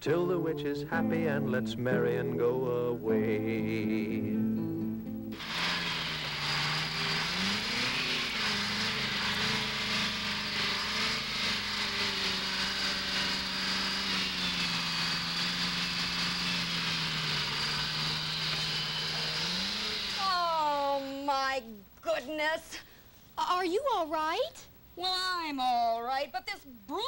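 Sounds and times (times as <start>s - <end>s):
small engine running: 5.3s - 21.3s.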